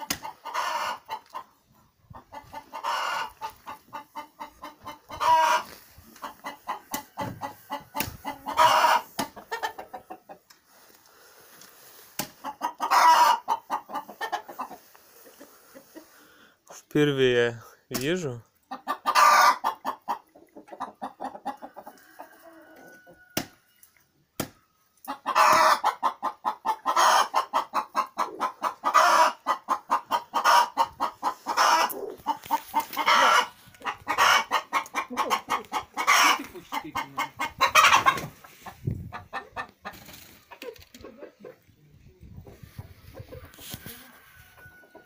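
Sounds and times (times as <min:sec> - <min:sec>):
chicken clucking: 0:00.0 - 0:16.5, 0:18.4 - 0:45.0.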